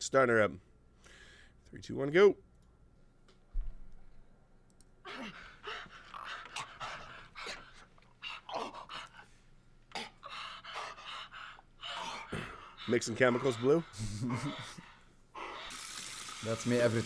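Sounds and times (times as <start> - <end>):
heavy panting breaths: 5.0 - 15.9
people talking: 16.4 - 17.0.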